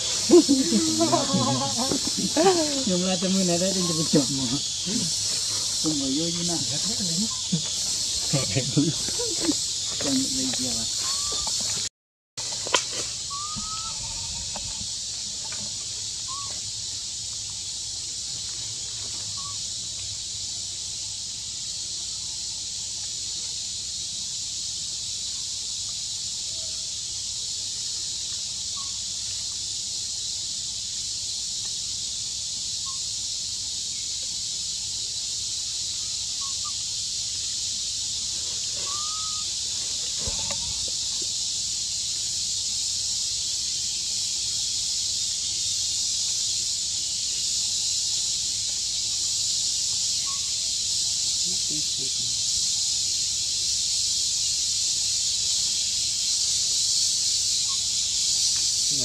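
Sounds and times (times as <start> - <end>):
insects droning: 0.0 - 59.0.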